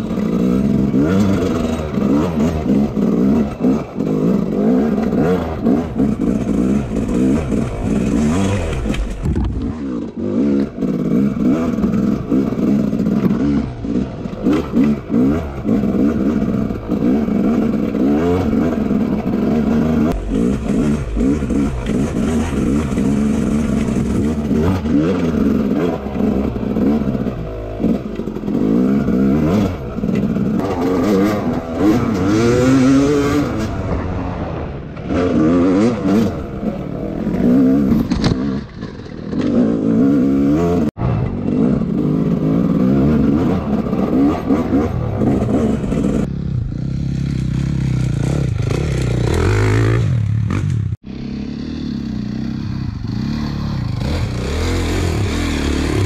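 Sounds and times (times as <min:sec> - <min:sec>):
bike rattling over rough ground: 0:00.0 - 0:33.0, 0:36.5 - 0:39.8
dirt bike engine revving: 0:00.0 - 0:56.0.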